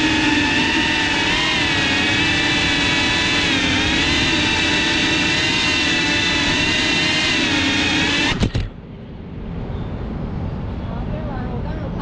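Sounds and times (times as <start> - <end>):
drone motors whining: 0.0 - 8.9.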